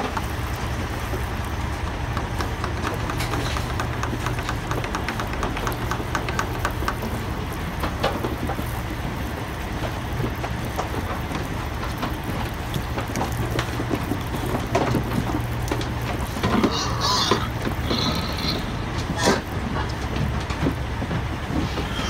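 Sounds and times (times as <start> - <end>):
truck running with low hum: 0.0 - 22.0
pigs knocking against metal trailer: 1.1 - 22.0
pig squeal: 16.6 - 19.4, 21.7 - 22.0.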